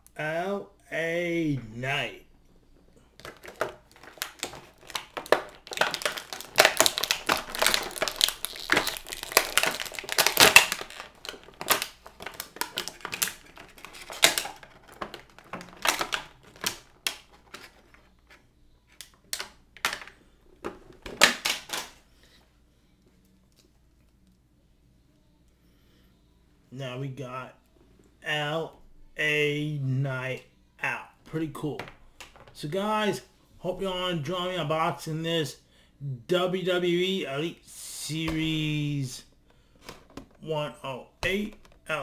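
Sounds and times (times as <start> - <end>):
plastic packaging crinkling: 3.1 - 18.4, 19.0 - 22.0.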